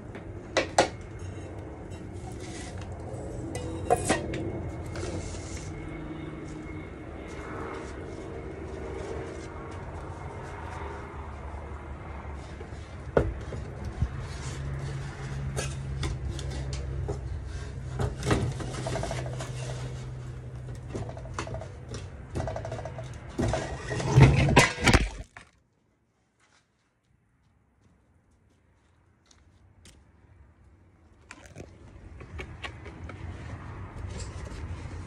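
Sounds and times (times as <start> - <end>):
steady low hum: 0.0 - 25.2
metal peel clanking and scraping: 3.4 - 5.6, 14.3 - 25.3.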